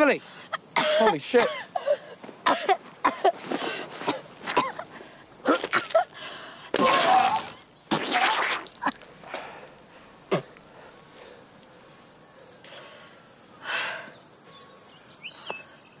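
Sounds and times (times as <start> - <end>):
woman coughing and retching: 0.8 - 1.7, 4.1 - 4.8
woman breathing: 6.2 - 6.7, 9.2 - 14.8.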